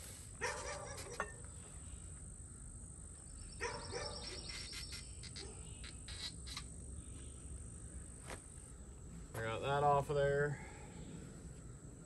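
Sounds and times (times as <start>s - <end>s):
dog barking: 0.4s - 1.2s, 3.6s - 4.3s
pulsing insect trill: 0.4s - 8.8s.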